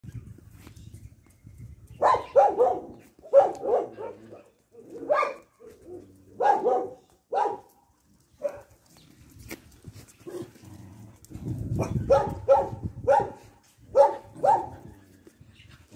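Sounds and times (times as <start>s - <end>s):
dog barking: 2.0s - 5.8s, 6.4s - 7.7s, 8.4s - 8.7s, 11.8s - 14.8s.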